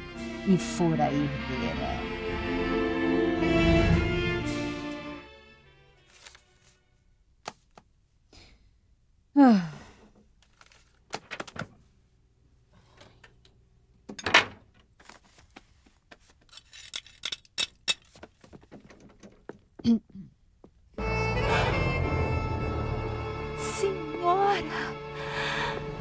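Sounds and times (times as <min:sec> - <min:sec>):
person sighing: 0:09.4 - 0:10.2
wheelchair clicks and metallic rattles: 0:10.4 - 0:11.8, 0:16.2 - 0:19.8.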